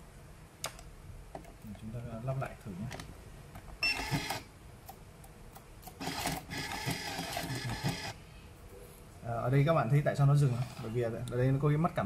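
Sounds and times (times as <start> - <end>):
tape dispenser whirring: 3.9 - 4.5, 5.8 - 8.2.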